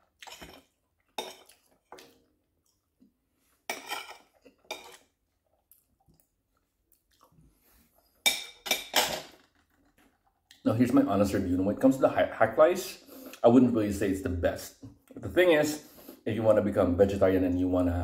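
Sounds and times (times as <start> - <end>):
chewing: 0.0 - 3.2, 4.1 - 8.2
cutlery clinking on plates: 3.7 - 5.0, 8.2 - 9.4.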